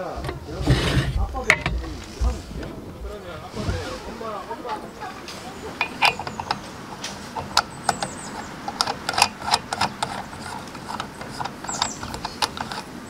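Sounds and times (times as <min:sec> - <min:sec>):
lantern pump plunger clicks: 0:05.8 - 0:13.0.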